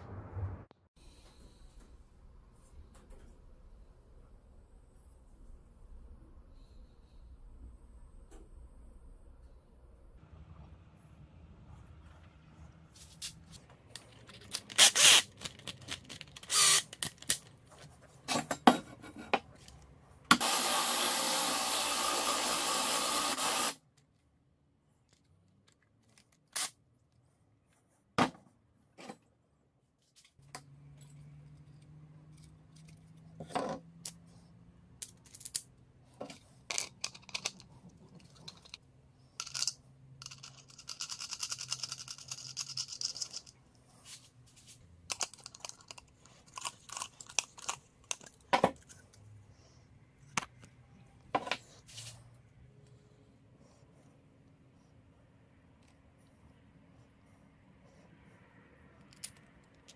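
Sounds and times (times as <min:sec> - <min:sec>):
cordless drill running: 0:16.5 - 0:16.8, 0:20.3 - 0:23.8
tools and parts clicking: 0:35.0 - 0:38.8, 0:39.4 - 0:43.6, 0:45.1 - 0:49.1, 0:59.0 - 0:59.9.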